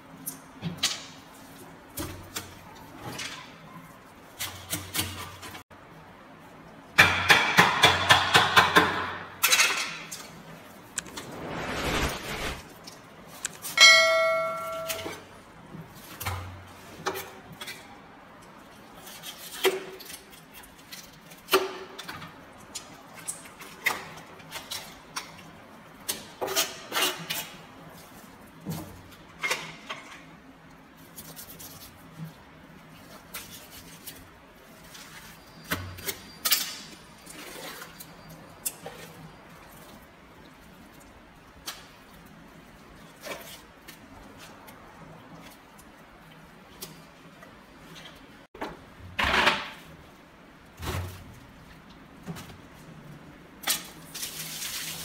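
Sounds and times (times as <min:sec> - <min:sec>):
loud ringing clang: 0:13.8 - 0:15.2.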